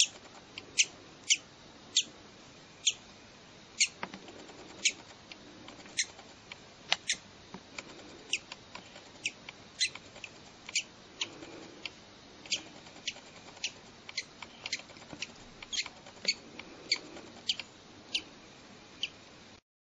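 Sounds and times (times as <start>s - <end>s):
bird chick peeping: 0.0s - 2.1s, 2.8s - 3.0s, 3.8s - 6.4s, 7.8s - 18.3s, 19.0s - 19.2s.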